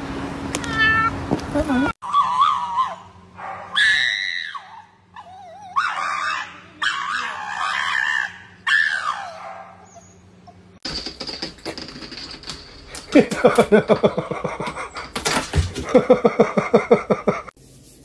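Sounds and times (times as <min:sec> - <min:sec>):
dog whining and howling: 0:02.0 - 0:10.7.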